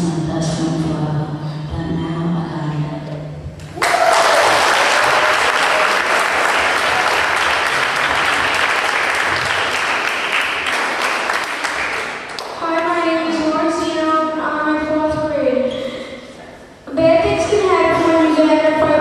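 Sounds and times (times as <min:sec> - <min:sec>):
audience applauding: 0:03.8 - 0:12.5.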